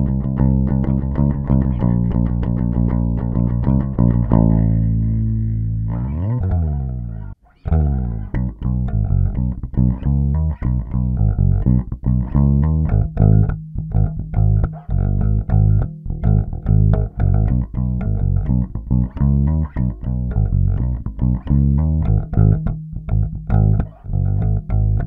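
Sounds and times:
electric bass notes: 0.0 - 25.0.

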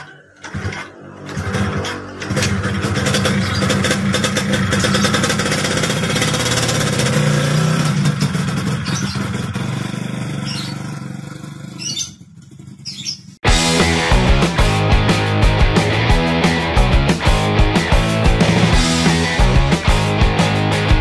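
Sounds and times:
scooter engine pulling away: 0.0 - 14.0
rock music with guitar: 13.4 - 21.0.

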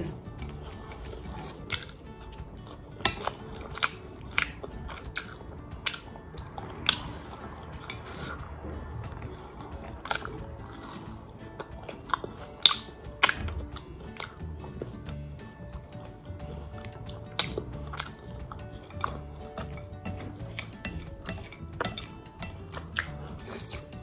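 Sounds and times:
person chewing and slurping noodles: 0.1 - 24.0
wet mouth smacks: 10.0 - 15.0, 16.8 - 18.6.

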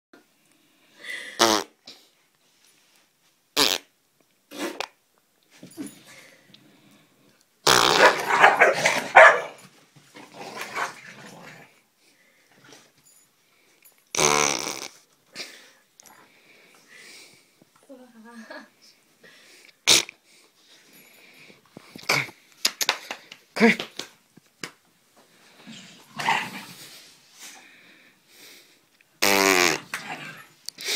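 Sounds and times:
dog farting: 1.4 - 1.7, 3.6 - 3.9, 7.6 - 9.3, 14.1 - 15.0, 19.8 - 20.2, 29.2 - 30.4
dog growling and barking: 8.0 - 9.6, 10.2 - 11.8, 26.0 - 26.8, 29.8 - 30.6.

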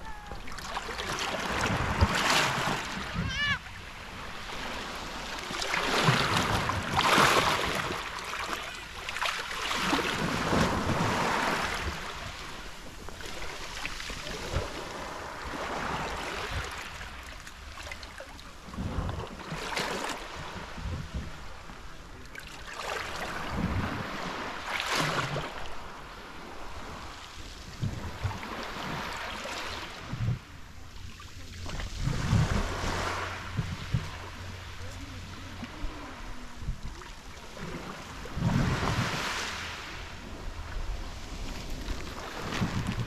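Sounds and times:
waves washing on pebble beach: 0.0 - 21.6, 22.6 - 30.4, 31.8 - 36.6, 37.4 - 43.0
wind rumbling on microphone: 18.6 - 19.6, 20.2 - 22.2, 23.2 - 24.6, 25.2 - 29.2, 29.8 - 43.0.

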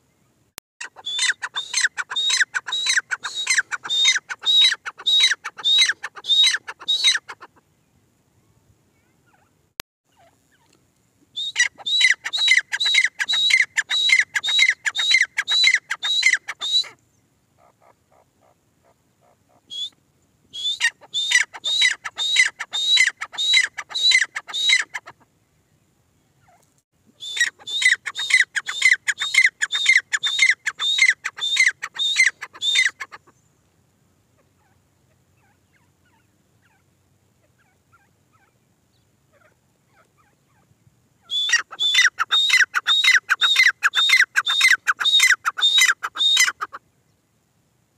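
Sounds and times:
francolin shrill calls: 0.8 - 7.5, 11.4 - 17.0, 17.6 - 25.1, 27.2 - 33.3, 41.2 - 46.8.

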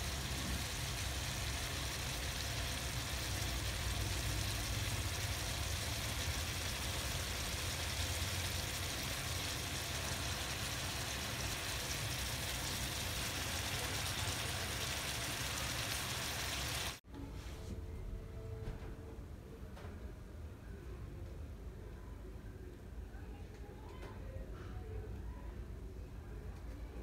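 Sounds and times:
shrimp sizzling in a pan: 0.0 - 17.0.

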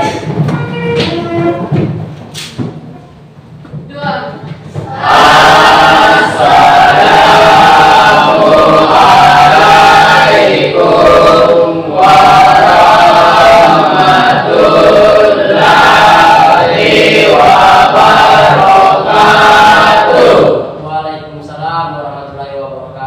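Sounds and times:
children chanting in unison: 4.9 - 21.1.

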